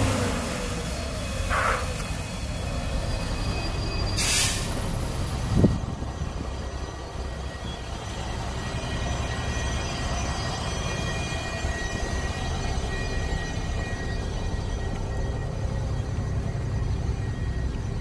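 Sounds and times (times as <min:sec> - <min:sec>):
bus driving past on wet road: 0:00.0 - 0:02.0
air brake hiss: 0:04.2 - 0:04.8.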